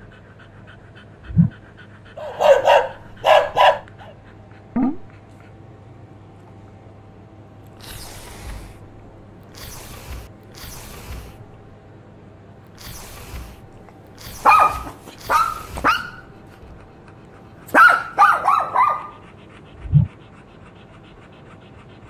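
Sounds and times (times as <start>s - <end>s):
dog barking: 2.2s - 3.9s, 14.2s - 16.5s, 17.7s - 19.2s.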